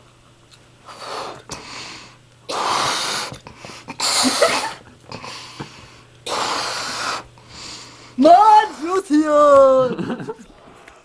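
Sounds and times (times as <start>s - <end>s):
person blowing up a balloon: 0.9s - 1.7s, 2.5s - 5.3s, 6.2s - 7.3s.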